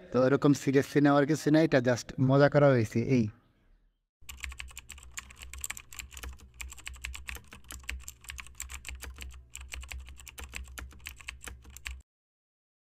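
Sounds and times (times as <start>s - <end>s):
keyboard typing clicks: 4.2s - 12.0s.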